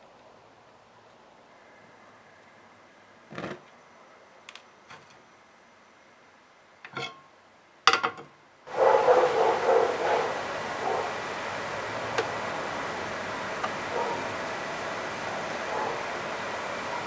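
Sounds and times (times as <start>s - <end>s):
pan clattering on metal grate: 6.9s - 7.2s, 7.9s - 8.3s
frying pan knocks: 7.9s - 8.2s
gas burner hissing: 8.7s - 17.0s.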